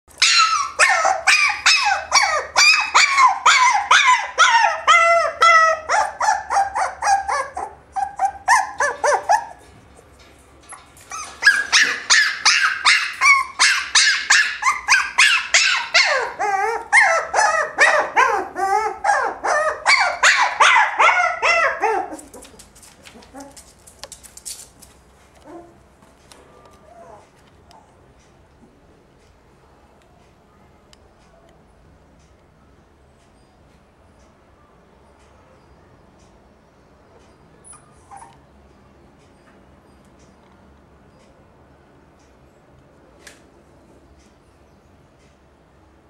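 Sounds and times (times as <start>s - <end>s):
puppy yapping: 0.2s - 9.6s, 10.7s - 23.7s, 37.6s - 38.4s.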